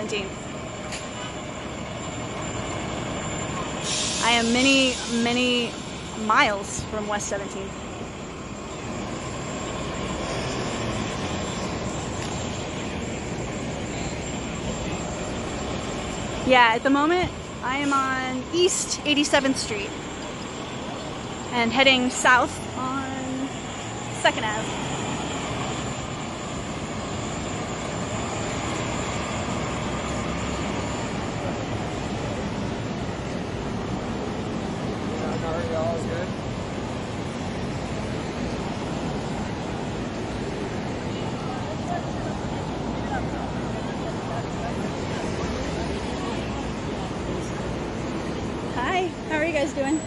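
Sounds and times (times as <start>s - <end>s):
city traffic passing: 0.0s - 50.0s.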